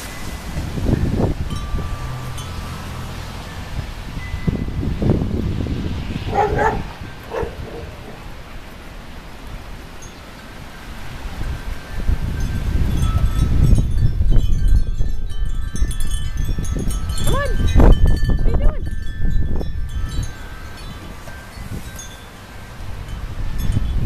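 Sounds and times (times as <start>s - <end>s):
wind chimes ringing: 0.0s - 5.1s, 6.6s - 7.8s, 9.9s - 24.0s
storm wind buffeting microphone: 0.0s - 9.8s, 11.0s - 24.0s.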